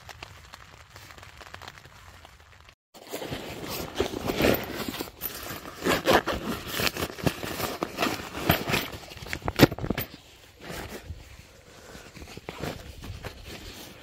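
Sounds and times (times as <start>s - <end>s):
rummaging in a backpack: 3.0s - 14.0s.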